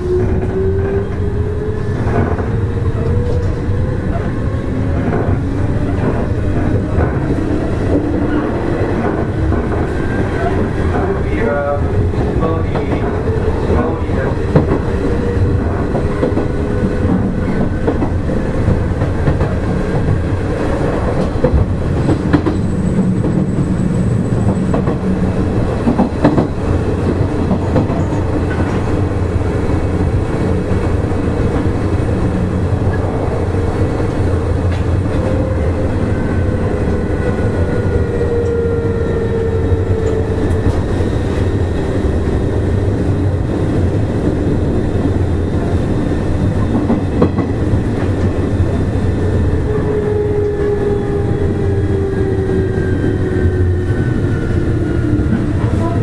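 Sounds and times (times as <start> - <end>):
train wheels rumbling on rail: 0.0 - 56.0
rail-joint clicks: 20.9 - 29.1, 34.1 - 35.4, 39.3 - 41.9, 46.5 - 48.8.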